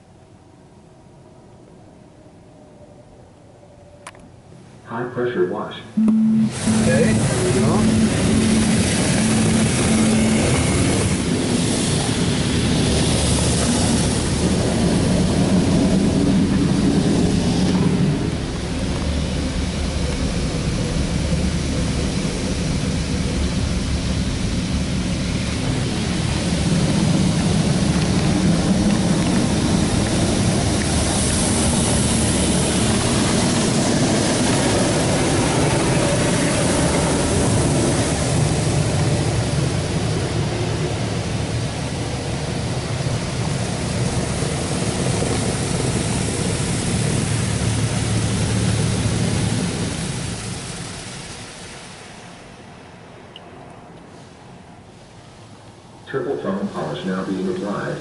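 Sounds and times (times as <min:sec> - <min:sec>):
low rumble: 0:06.0 - 0:52.8
high-pressure water jets on car: 0:06.6 - 0:52.8.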